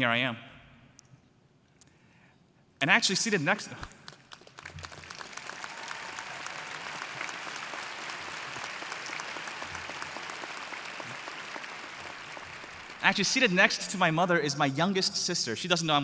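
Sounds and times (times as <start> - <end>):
large crowd applauding: 4.1 - 13.6.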